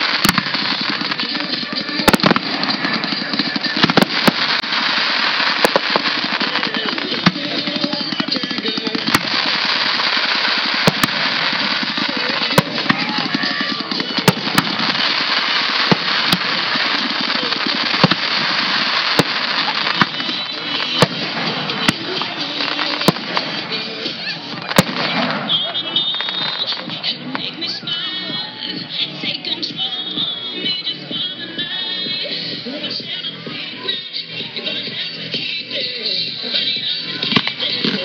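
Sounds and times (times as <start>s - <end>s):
fireworks shells bursting: 0.0s - 27.1s
fireworks crackle: 0.0s - 38.0s.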